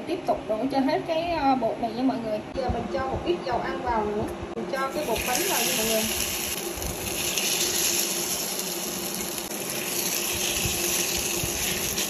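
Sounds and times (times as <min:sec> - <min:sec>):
batter sizzling in hot oil: 0:04.8 - 0:12.0.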